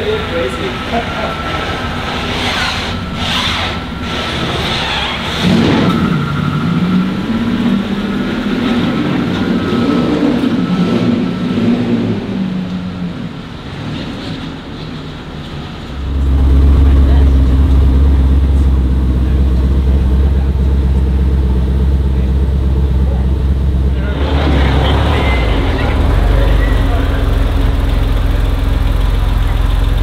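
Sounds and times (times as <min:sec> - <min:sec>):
loud low rumble: 0:00.0 - 0:30.0
car driving past: 0:23.1 - 0:30.0.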